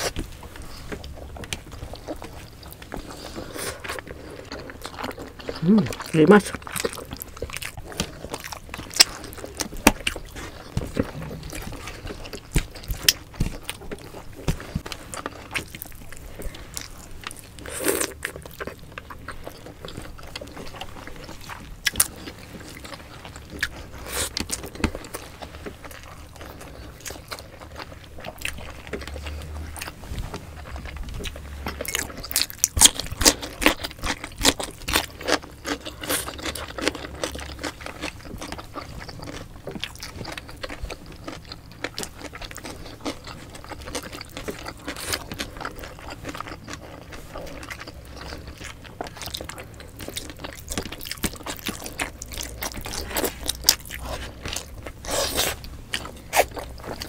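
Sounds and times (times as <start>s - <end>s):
wet chewing: 0.0s - 57.0s.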